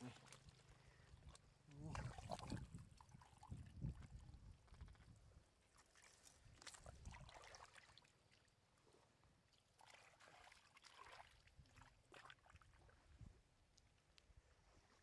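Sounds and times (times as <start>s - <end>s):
hands splashing in muddy water: 1.8s - 5.0s, 5.7s - 8.2s, 9.7s - 12.8s.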